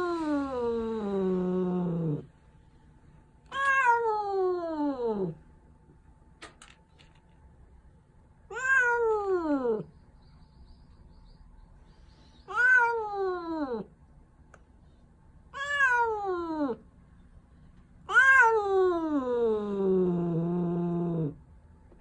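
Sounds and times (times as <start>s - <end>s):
cat meowing: 3.5s - 5.4s, 8.5s - 9.9s, 12.5s - 13.8s, 15.5s - 16.8s, 18.1s - 20.5s.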